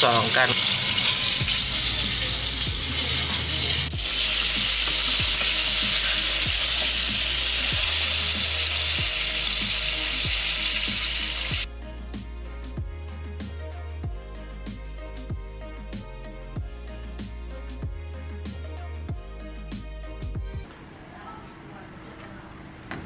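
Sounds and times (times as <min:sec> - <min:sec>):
oil sizzling while deep-frying: 0:00.0 - 0:11.7.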